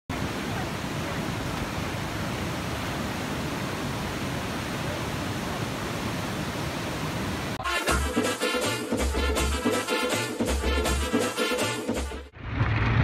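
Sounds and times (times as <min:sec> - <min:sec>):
water rushing into rapids: 0:00.1 - 0:07.6.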